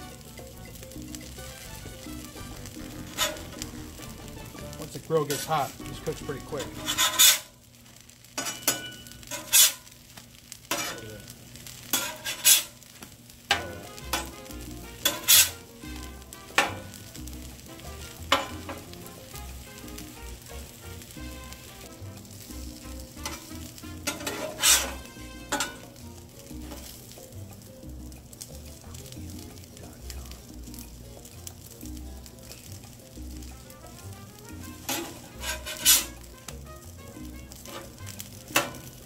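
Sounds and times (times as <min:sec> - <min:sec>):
food sizzling on a griddle: 0:00.0 - 0:39.0
metal spatula scraping: 0:01.4 - 0:07.6, 0:08.4 - 0:09.9, 0:10.6 - 0:12.9, 0:13.5 - 0:19.0, 0:19.6 - 0:26.0, 0:26.6 - 0:27.2, 0:33.5 - 0:39.0.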